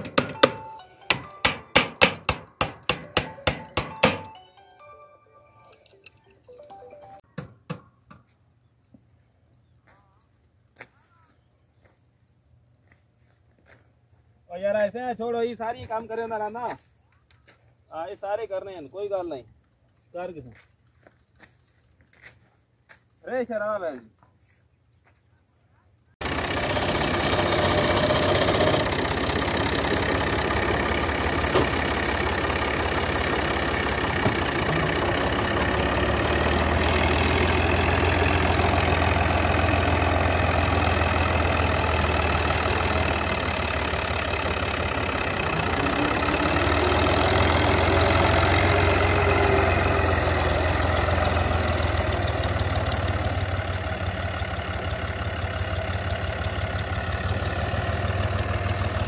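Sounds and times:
tractor diesel engine running: 0:00.0 - 0:07.4, 0:26.2 - 0:59.0.

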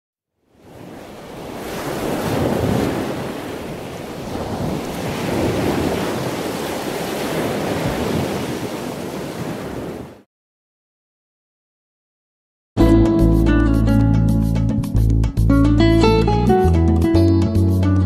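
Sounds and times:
ocean waves washing: 0:00.5 - 0:10.3.

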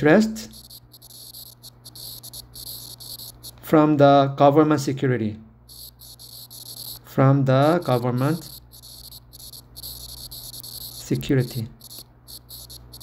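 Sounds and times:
insect trilling: 0:00.0 - 0:03.6, 0:05.7 - 0:13.0
man talking: 0:11.0 - 0:11.8.

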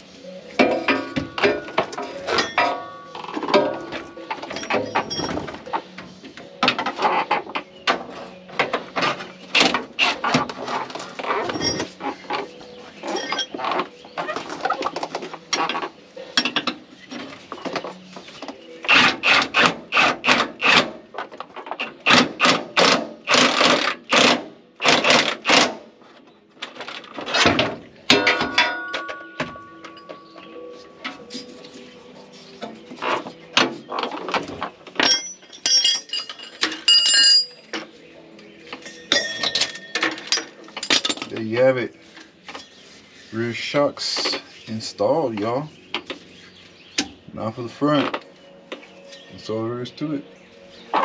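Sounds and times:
metal tool clinks and knocks: 0:00.6 - 0:05.5, 0:13.1 - 0:13.6, 0:28.1 - 0:31.6, 0:35.0 - 0:37.8, 0:38.8 - 0:41.4.

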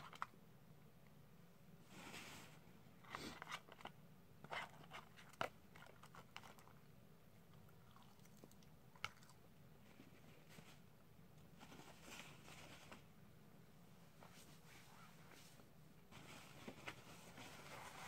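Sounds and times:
chewing: 0:07.5 - 0:09.4.

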